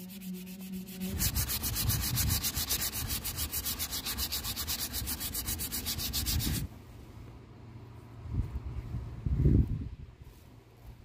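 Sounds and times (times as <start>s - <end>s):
sandpaper rasping on wood: 0.0s - 6.7s.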